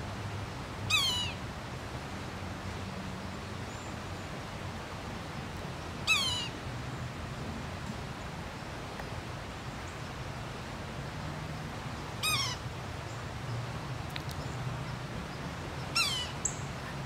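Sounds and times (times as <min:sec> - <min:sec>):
bird mewing call: 0:00.9 - 0:01.4, 0:06.0 - 0:06.5, 0:12.2 - 0:12.6, 0:15.9 - 0:16.7.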